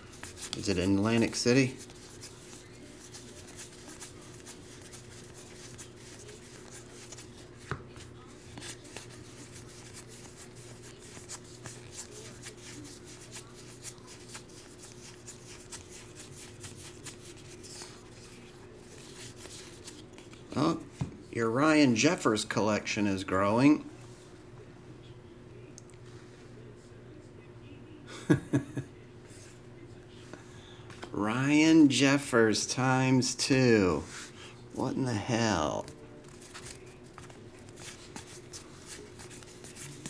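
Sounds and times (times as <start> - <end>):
cards being flipped: 0.0 - 20.4, 35.8 - 40.0.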